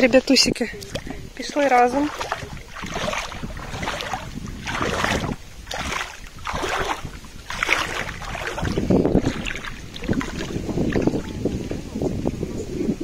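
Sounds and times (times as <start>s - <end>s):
water sloshing and splashing: 0.0s - 12.0s.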